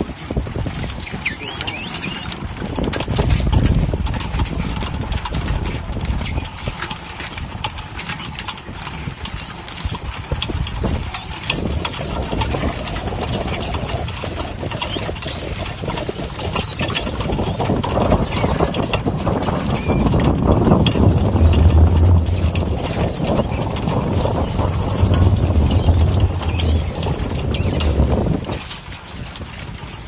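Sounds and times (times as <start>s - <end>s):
low engine rumble: 18.8s - 29.5s.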